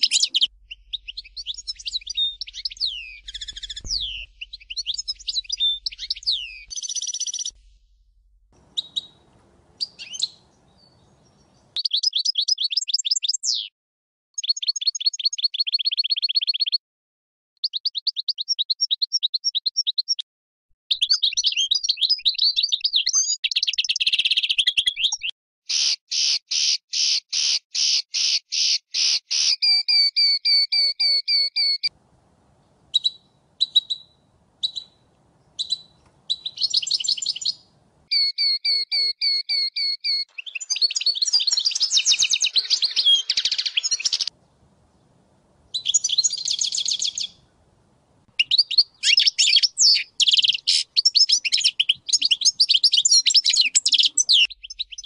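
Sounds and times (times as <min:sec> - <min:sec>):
goldfinch singing: 0:00.0 - 0:07.6, 0:08.6 - 0:13.7, 0:32.9 - 0:44.4, 0:45.7 - 0:47.5, 0:48.4 - 0:55.0.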